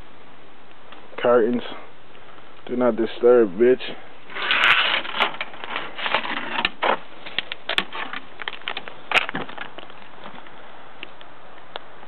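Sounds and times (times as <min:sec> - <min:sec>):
dry straw and twigs rustling: 0:04.2 - 0:11.3.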